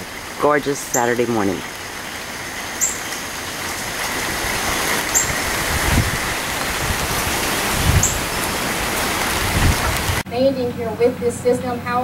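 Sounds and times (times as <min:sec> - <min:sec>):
light rain hissing: 0:00.0 - 0:10.2
gusty wind in trees: 0:00.0 - 0:11.6
wind buffeting microphone: 0:03.2 - 0:11.0.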